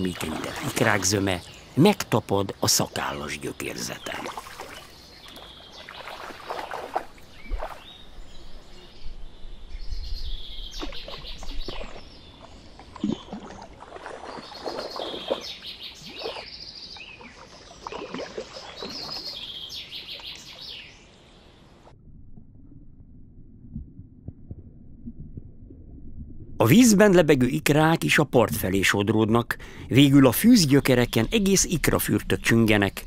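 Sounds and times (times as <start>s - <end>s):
fish splashing and thrashing: 0.0s - 1.2s, 4.1s - 7.9s, 10.8s - 16.5s, 17.2s - 19.4s
small birds chirping: 0.0s - 21.7s.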